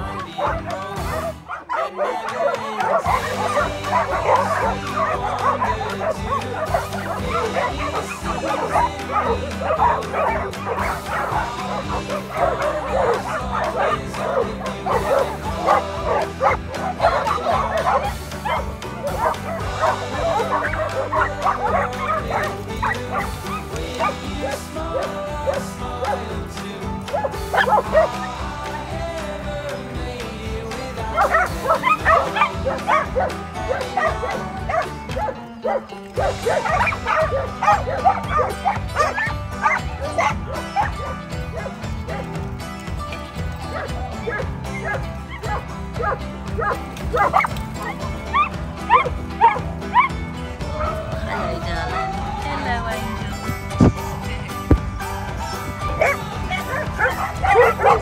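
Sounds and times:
dogs barking excitedly: 0.0 - 29.6, 30.6 - 52.4, 53.1 - 58.0
background music: 0.0 - 58.0.

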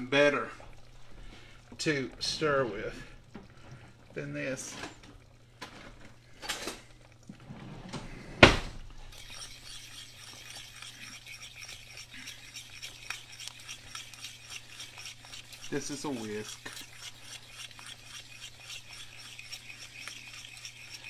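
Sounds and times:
whisk scraping a pan: 9.0 - 21.0.

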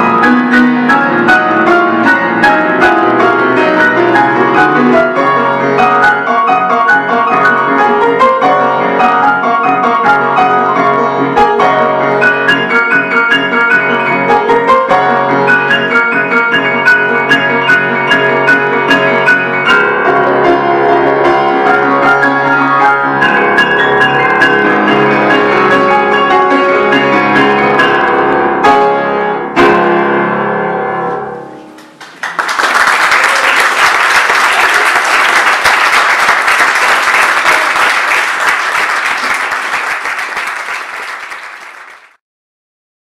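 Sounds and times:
grand piano classical piece: 0.0 - 42.2
audience applauding: 31.8 - 42.2.

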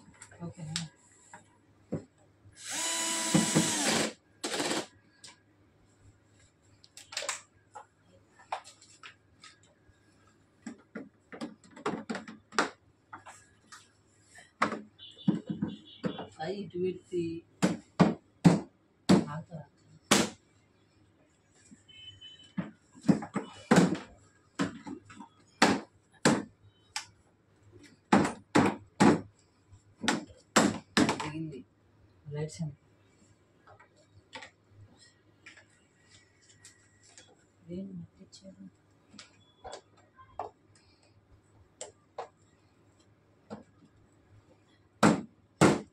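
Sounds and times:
plastic parts clicking and knocking: 10.6 - 13.3
sharp knocks on hard plastic: 17.6 - 19.3, 45.0 - 45.9.

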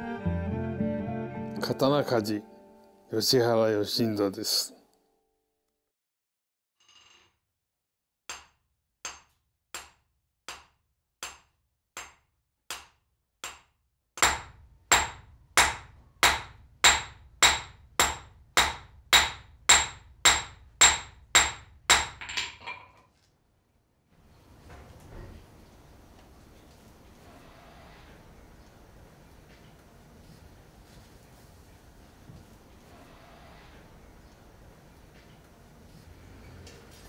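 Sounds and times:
hammer striking steel on anvil: 8.3 - 22.5.

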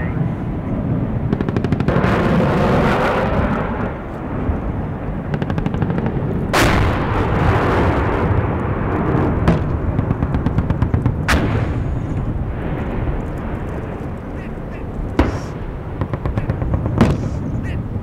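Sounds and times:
steady noisy background: 0.0 - 18.0
gunshots: 1.2 - 4.0, 5.2 - 18.0.

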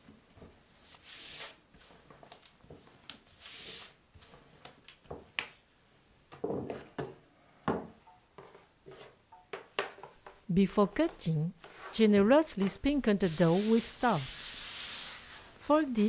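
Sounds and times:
rolling pin swishing on dough: 0.1 - 5.3, 11.6 - 15.6.

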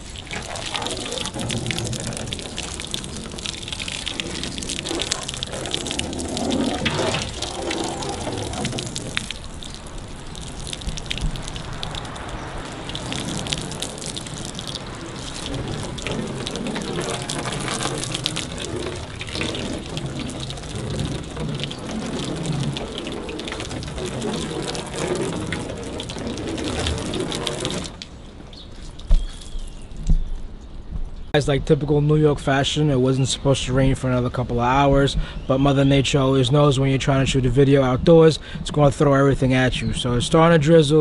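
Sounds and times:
water gushing onto a car: 0.0 - 30.2.

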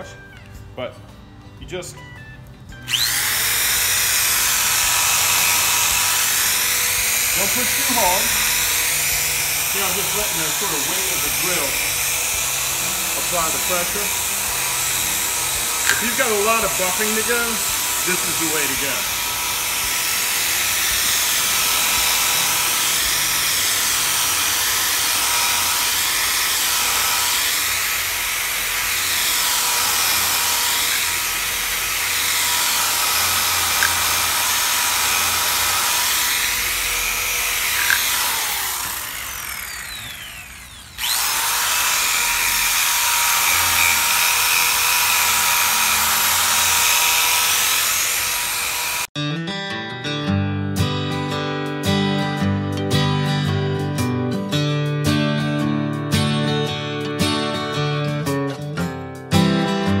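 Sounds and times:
electric drill buffing wood: 2.8 - 49.2.

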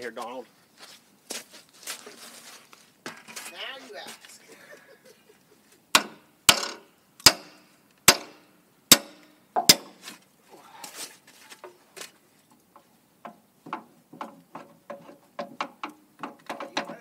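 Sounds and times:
hammer striking steel: 6.0 - 10.0.

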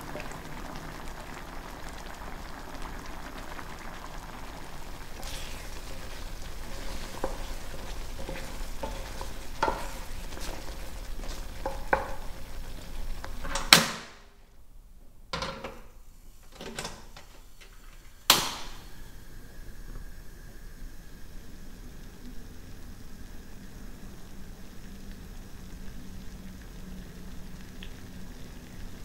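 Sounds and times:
food sizzling in a pan: 0.0 - 14.4, 15.9 - 29.0
utensil clicking stirring: 5.2 - 12.5.

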